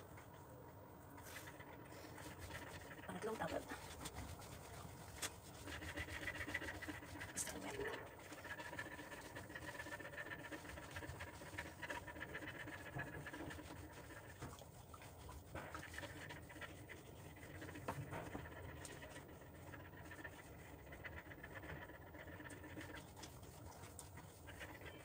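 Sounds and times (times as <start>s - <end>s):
towel rubbing wet fur: 0.0s - 25.0s
dog panting: 1.2s - 25.0s.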